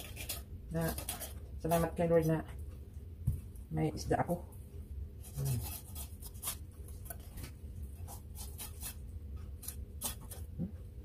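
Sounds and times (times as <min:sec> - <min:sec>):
knife scraping fish bones: 0:00.0 - 0:01.9, 0:05.2 - 0:07.4, 0:08.0 - 0:10.4
low steady hum: 0:00.0 - 0:11.0.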